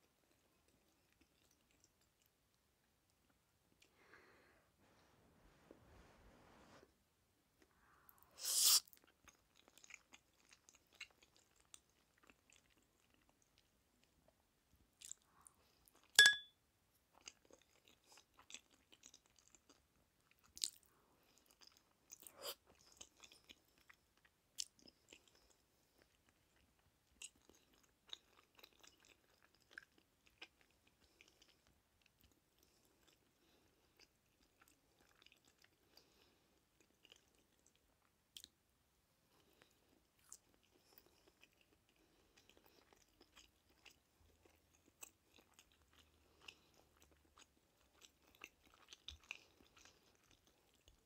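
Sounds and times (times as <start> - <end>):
close chewing with mouth clicks: 0.0 - 4.0, 7.6 - 16.2, 17.0 - 38.6, 39.2 - 51.0
noodles slurped: 8.4 - 9.0
sharp ringing click: 16.2 - 16.5.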